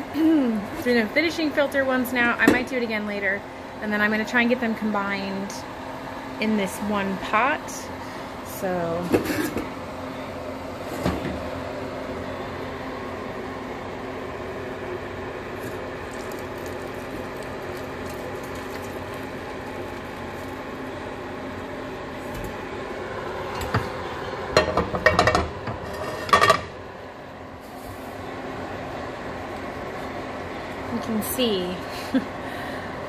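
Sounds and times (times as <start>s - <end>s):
liquid pouring: 15.6s - 20.7s.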